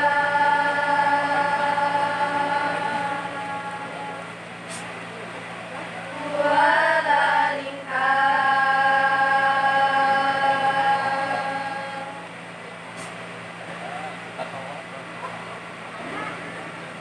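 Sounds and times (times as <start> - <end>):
women singing together: 0.0 - 4.4, 6.1 - 12.4.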